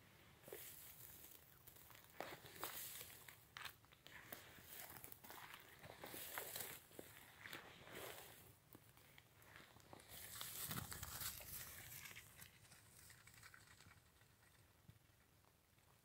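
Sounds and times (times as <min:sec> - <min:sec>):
footsteps through dry grass: 0:00.4 - 0:08.7, 0:09.4 - 0:13.7.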